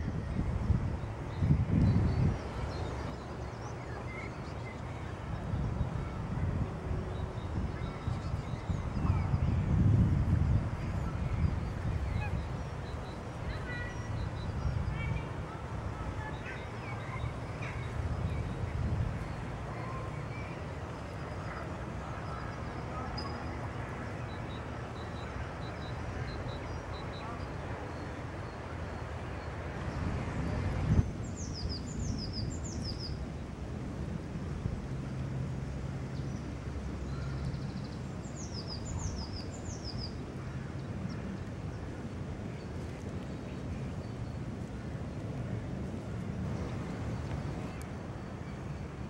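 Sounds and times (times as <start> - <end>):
small songbird singing: 29.9 - 33.2.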